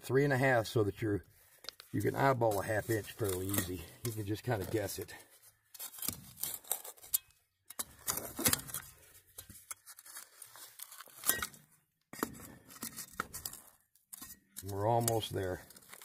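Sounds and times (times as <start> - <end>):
shovel scraping in gravel: 5.8 - 7.2.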